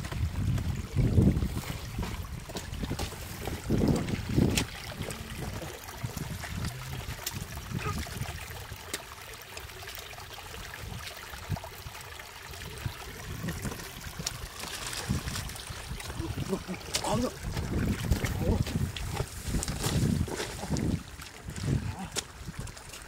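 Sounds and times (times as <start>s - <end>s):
stream water trickling: 0.0s - 23.0s
water splashing and sloshing: 0.0s - 23.0s
boots thumping into mud: 14.2s - 21.0s.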